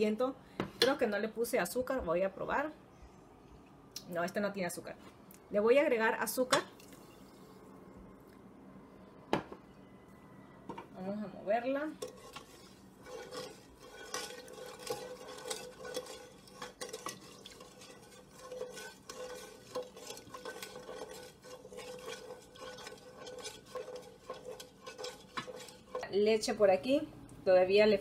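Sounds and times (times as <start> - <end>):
wooden spoon stirring in metal pot: 11.6 - 26.7.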